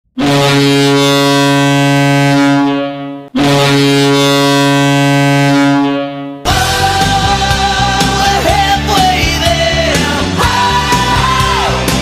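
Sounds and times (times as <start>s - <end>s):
deep goal horn blasts: 0.2s - 6.5s.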